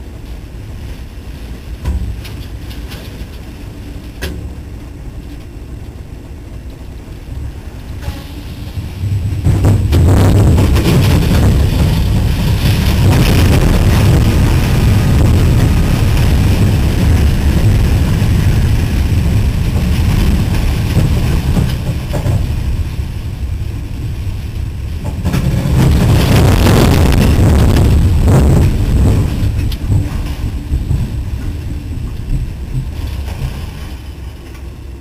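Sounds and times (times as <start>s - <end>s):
freight train rumble: 0.0s - 35.0s
wind buffeting microphone: 0.0s - 35.0s.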